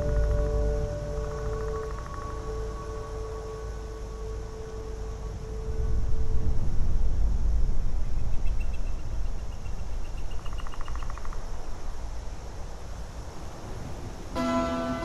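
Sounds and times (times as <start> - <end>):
low rumble: 0.0 - 10.0.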